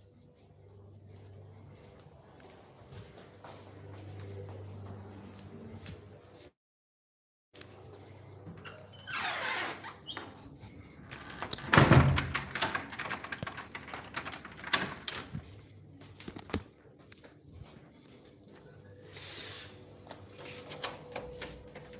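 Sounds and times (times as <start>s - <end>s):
metallic jingle: 11.1s - 15.5s.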